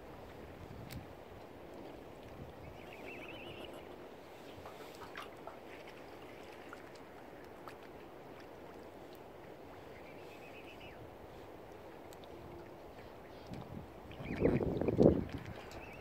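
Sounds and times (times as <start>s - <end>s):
rushing water: 0.0s - 16.0s
wind: 0.0s - 16.0s
faint clicks: 11.7s - 12.4s.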